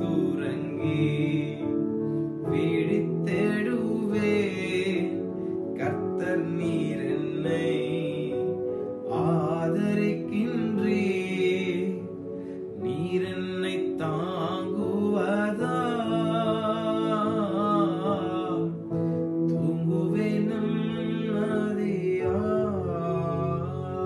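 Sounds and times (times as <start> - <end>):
keyboard sustained chords: 0.0 - 24.0
man singing slow worship melody: 0.0 - 24.0.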